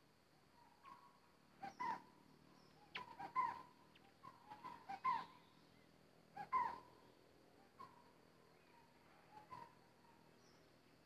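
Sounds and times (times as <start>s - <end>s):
whistled bird calls: 0.6s - 5.6s, 6.4s - 6.9s.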